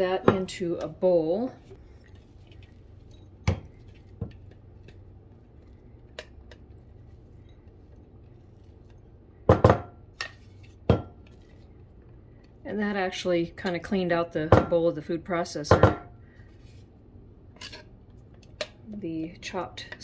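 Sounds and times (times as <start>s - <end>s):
kitchenware knocking and clinking: 9.5s - 10.0s, 15.7s - 16.1s.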